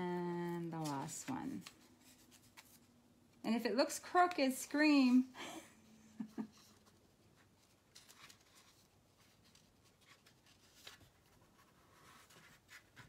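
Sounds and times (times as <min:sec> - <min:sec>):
paper and tape rustling: 0:00.0 - 0:03.0, 0:06.3 - 0:13.0.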